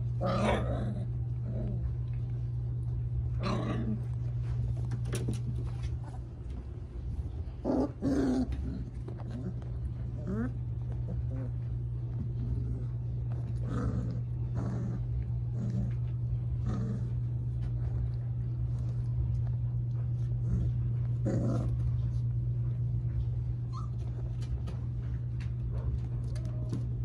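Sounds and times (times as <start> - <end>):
steady low hum: 0.0 - 27.0
puppies growling and yipping: 0.2 - 2.0, 7.5 - 17.3, 20.4 - 22.2.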